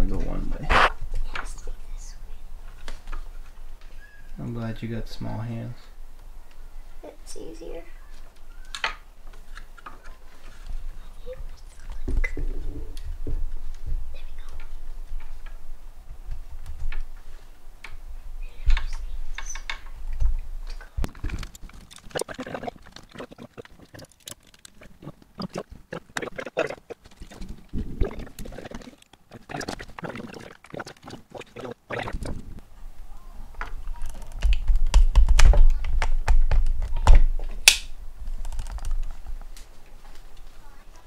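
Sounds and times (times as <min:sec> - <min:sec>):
clicks and rattles of parts: 0:18.7 - 0:25.3, 0:38.4 - 0:39.2.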